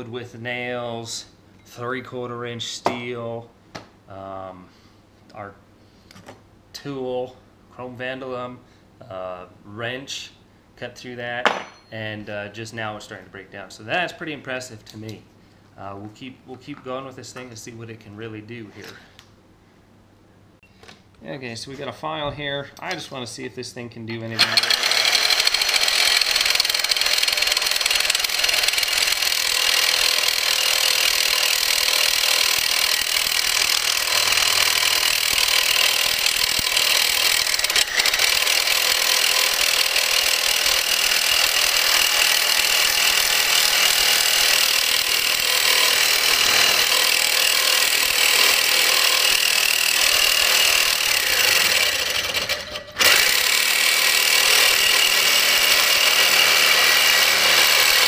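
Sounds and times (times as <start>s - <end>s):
reciprocating saw cutting steel: 24.3s - 58.0s.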